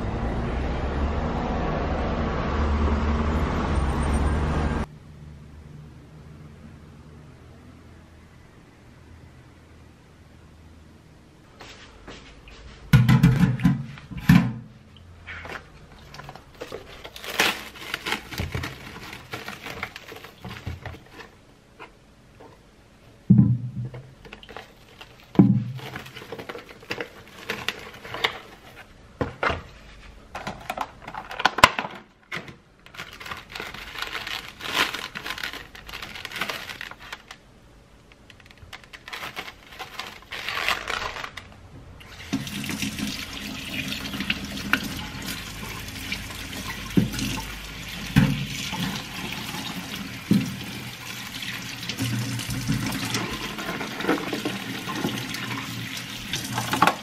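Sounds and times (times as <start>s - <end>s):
mushrooms knocking in metal sink: 12.9s - 14.6s
plastic bag crinkling: 15.5s - 21.4s, 24.2s - 28.9s, 30.4s - 37.4s, 38.4s - 41.6s
tap water running into sink: 42.1s - 57.0s.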